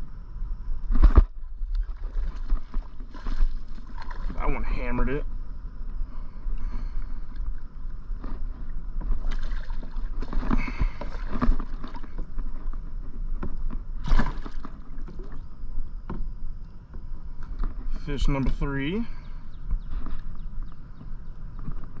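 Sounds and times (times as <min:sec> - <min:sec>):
fish splashing at water surface: 0:09.2 - 0:12.2, 0:14.0 - 0:15.4.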